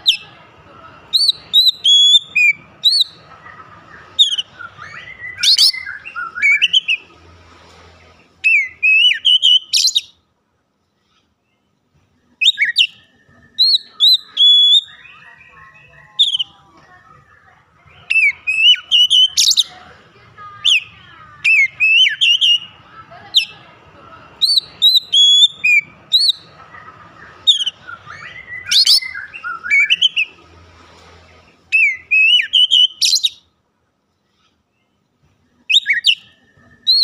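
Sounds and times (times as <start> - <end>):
bird singing whistles: 1.2 - 3.2, 4.2 - 7.0, 8.4 - 10.2, 12.4 - 15.5, 18.0 - 19.7, 21.5 - 22.7, 24.4 - 26.4, 27.4 - 30.4, 31.7 - 33.5, 35.7 - 37.0.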